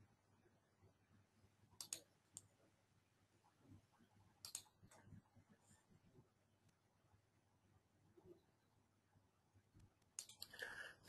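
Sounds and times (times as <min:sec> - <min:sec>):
computer mouse clicks: 0:01.8 - 0:02.5, 0:04.4 - 0:05.1, 0:09.8 - 0:10.7.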